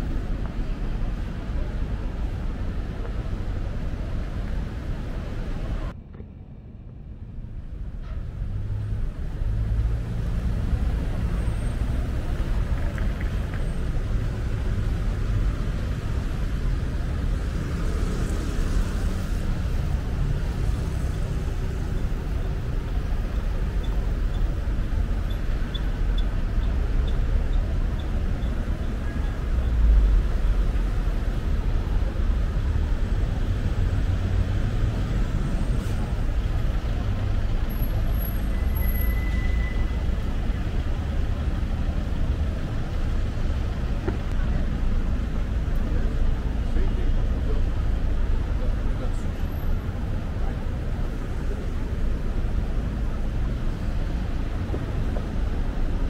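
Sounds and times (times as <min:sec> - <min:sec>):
road traffic rumble: 0:00.0 - 0:56.0
passing vehicle rumble: 0:07.0 - 0:56.0.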